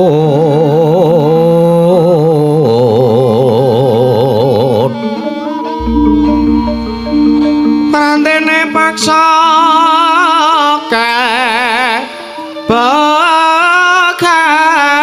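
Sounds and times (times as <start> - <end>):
soft gamelan accompaniment: 5.7 - 8.6.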